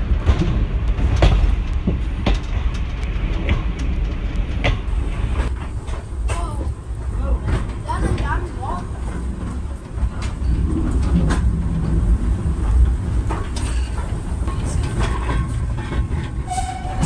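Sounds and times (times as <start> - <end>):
railway wheels rumbling: 0.0 - 17.0
carriage clacks and rattles: 0.2 - 6.8, 7.4 - 17.0.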